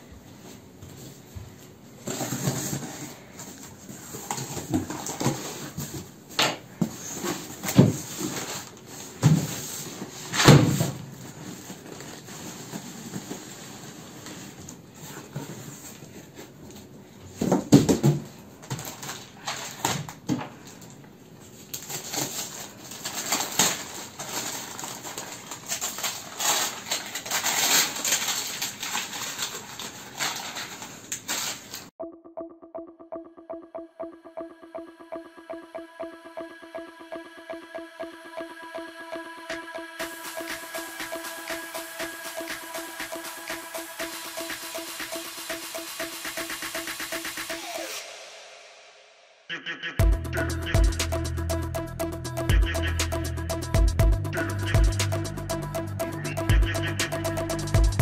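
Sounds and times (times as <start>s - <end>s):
plastic-wrapped bundles rustling: 21.7s - 31.9s.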